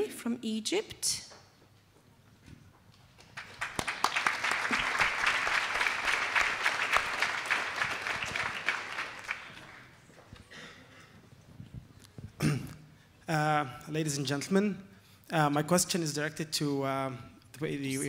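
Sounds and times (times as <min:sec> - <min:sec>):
audience applauding: 0:03.2 - 0:10.1.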